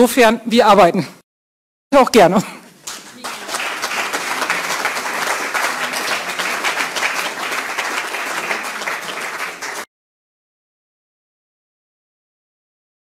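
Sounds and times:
audience applauding: 2.8 - 9.9.

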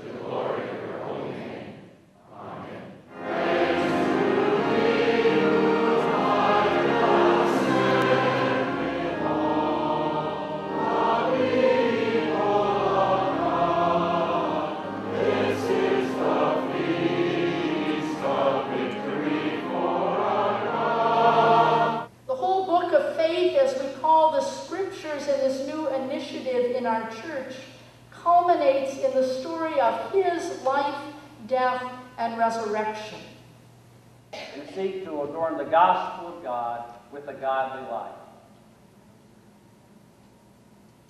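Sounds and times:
congregation singing: 0.0 - 22.1.

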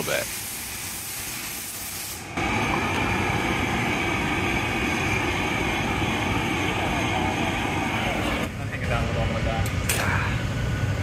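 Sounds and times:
compressed air gun blowing: 0.0 - 6.5.

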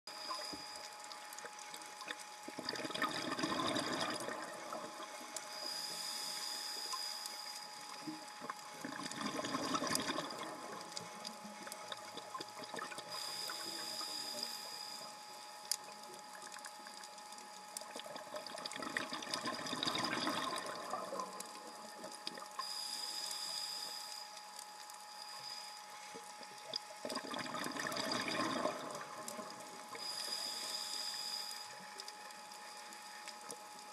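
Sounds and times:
faint steady crackle: 0.1 - 33.9
hissing regulator inhales: 13.1 - 15.1.

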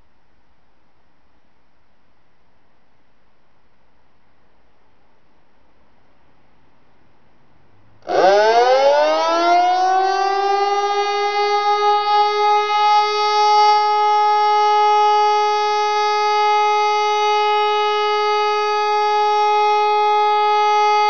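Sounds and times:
siren rising to steady tone: 8.0 - 21.0.

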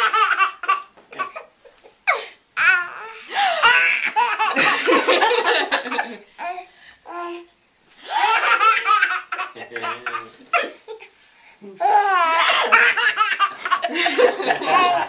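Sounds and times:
baby laughing hard: 0.0 - 6.2, 8.1 - 11.1, 12.0 - 15.0
adults laughing: 4.4 - 6.2, 12.5 - 15.0.

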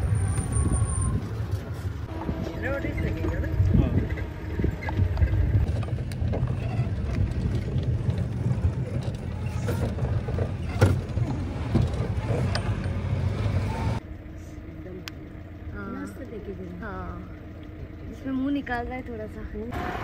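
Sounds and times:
jeep engine and road rumble: 0.0 - 20.0
vehicle body rattling and knocking: 3.2 - 13.2.

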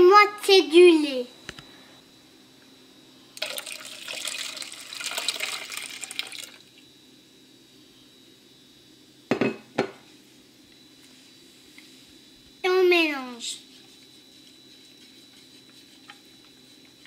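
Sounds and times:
milk pouring into bowl: 3.4 - 6.7.

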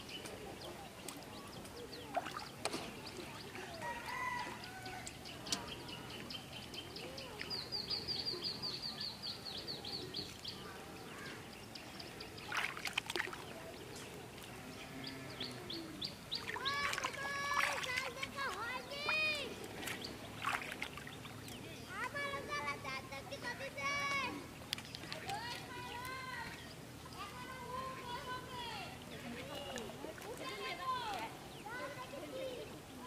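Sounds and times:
small birds chirping: 0.0 - 33.0
water splashing and dripping: 0.2 - 4.0, 12.4 - 14.6, 16.1 - 21.6, 24.1 - 27.8.

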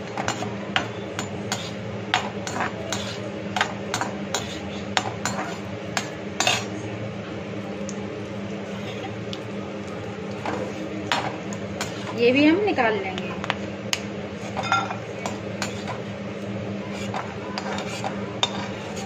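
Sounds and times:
steady low hum: 0.0 - 19.0
metal spoon scraping a pan: 1.2 - 1.8, 2.4 - 5.7, 6.4 - 6.7, 11.8 - 12.2, 14.4 - 16.0, 16.9 - 19.0.

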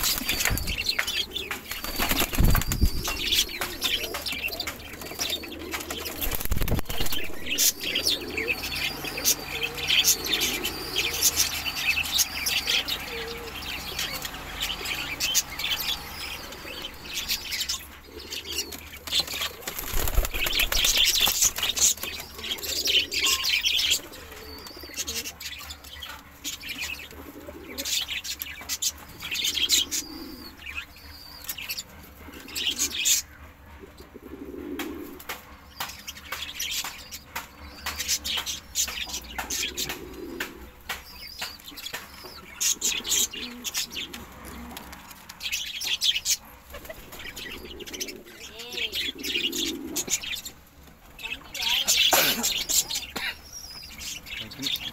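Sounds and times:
wings flapping: 0.0 - 7.7, 19.1 - 22.4
small birds chirping: 0.0 - 33.4, 35.6 - 54.9
pigeons cooing: 0.0 - 35.4, 36.2 - 54.9.

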